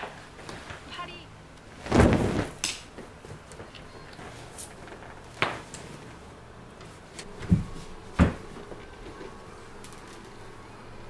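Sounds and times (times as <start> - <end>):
curtain fabric dropping on floor: 1.7 - 3.4, 4.2 - 6.0, 7.4 - 9.2.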